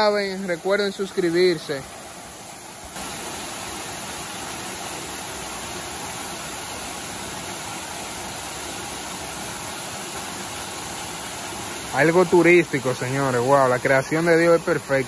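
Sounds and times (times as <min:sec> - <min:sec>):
waterfall rushing into pool: 0:00.0 - 0:15.0.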